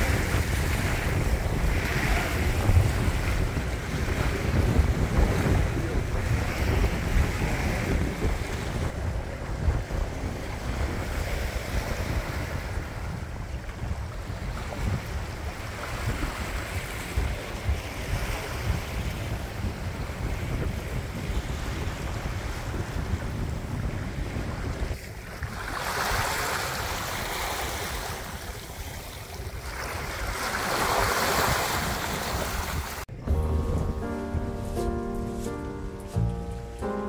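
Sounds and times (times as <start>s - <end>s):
water washing against hull: 0.0s - 20.9s
wind buffeting microphone: 0.0s - 36.9s.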